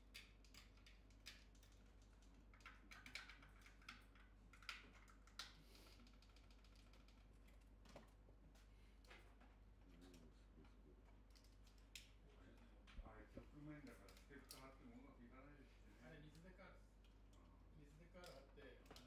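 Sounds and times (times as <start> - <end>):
faint clicks and taps: 0.0 - 14.7, 18.1 - 19.0.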